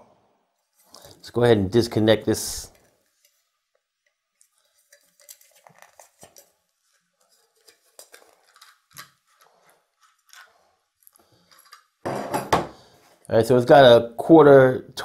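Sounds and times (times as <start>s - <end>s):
plastic clicks and scrapes: 4.4s - 12.0s.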